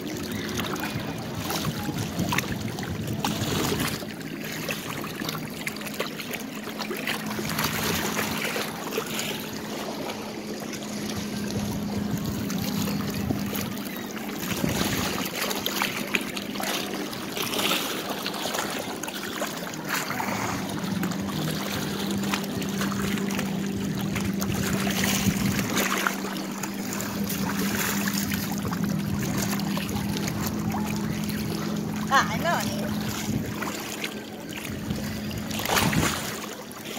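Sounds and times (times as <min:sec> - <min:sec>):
wind on microphone: 0:00.0 - 0:04.0, 0:10.9 - 0:13.8, 0:14.4 - 0:15.2, 0:20.1 - 0:33.8, 0:34.6 - 0:36.4
lake water lapping at shore: 0:00.0 - 0:36.9.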